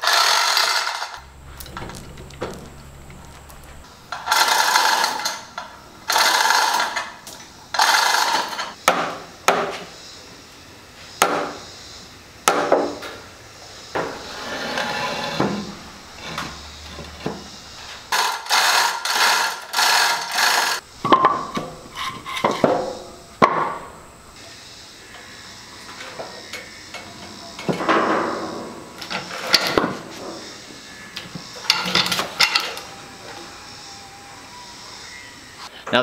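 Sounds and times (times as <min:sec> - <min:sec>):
concrete block scraping on floor: 0:14.0 - 0:20.8.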